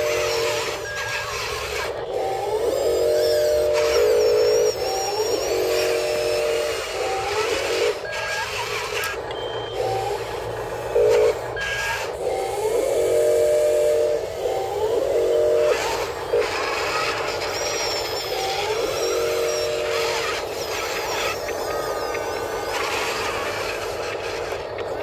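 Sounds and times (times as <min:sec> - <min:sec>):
electric gear motors whining: 0:00.0 - 0:25.0.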